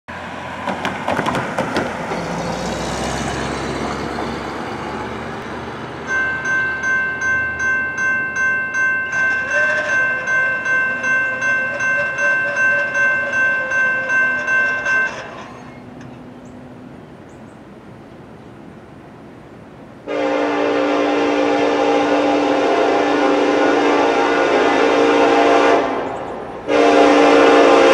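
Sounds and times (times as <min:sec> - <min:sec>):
railroad crossing bell ringing: 0:05.4 - 0:16.6.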